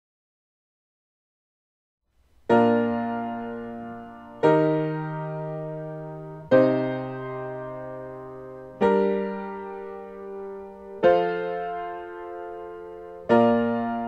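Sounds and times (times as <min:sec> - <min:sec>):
piano chords: 0:02.4 - 0:14.0.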